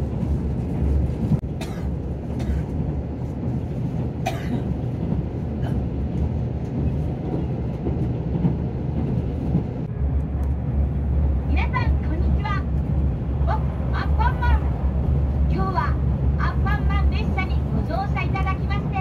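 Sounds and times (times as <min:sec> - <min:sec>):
train running rumble: 0:00.0 - 0:19.0.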